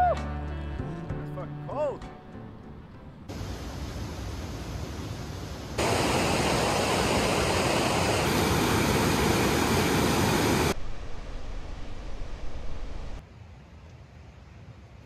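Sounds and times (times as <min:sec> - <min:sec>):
creek rushing down a cascade: 0:05.8 - 0:11.1.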